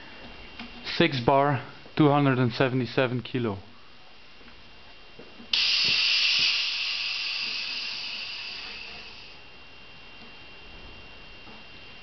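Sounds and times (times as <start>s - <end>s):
compressed air hissing: 5.5s - 9.5s.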